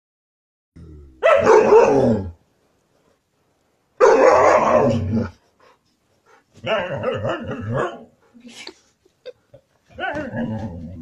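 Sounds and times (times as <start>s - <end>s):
husky howling calls: 4.0s - 5.3s.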